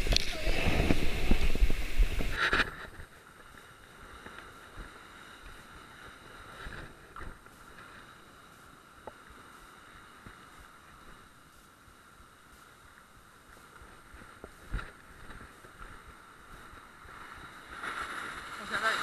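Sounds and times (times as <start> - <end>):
wind on microphone: 0.0 - 3.1
muffled surf on rocks: 0.0 - 19.0.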